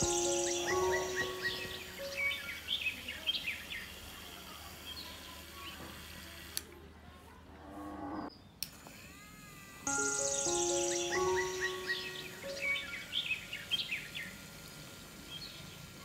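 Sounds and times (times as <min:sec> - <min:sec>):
small birds chirping: 0:00.0 - 0:04.1, 0:09.9 - 0:14.6, 0:15.2 - 0:16.0.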